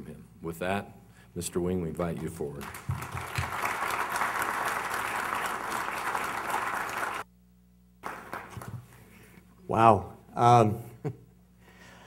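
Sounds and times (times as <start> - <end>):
audience applauding: 2.6 - 7.2, 8.0 - 9.0.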